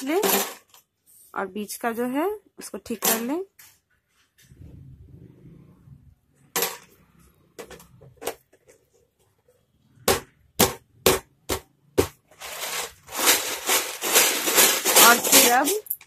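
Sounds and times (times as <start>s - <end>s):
cord rustling and rubbing: 12.2s - 16.0s.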